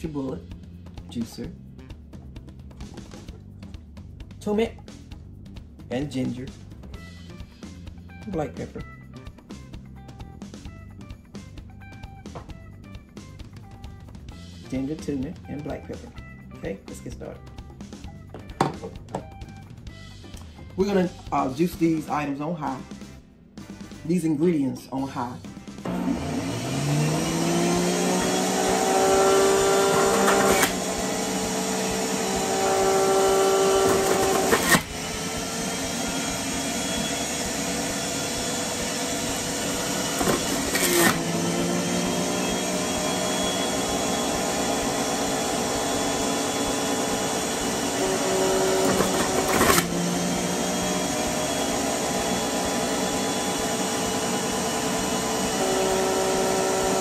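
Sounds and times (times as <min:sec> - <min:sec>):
sharp knocks in juicer: 0:18.4 - 0:19.3, 0:33.6 - 0:34.9, 0:39.7 - 0:41.8, 0:48.7 - 0:50.0
juicer motor running: 0:25.8 - 0:57.0.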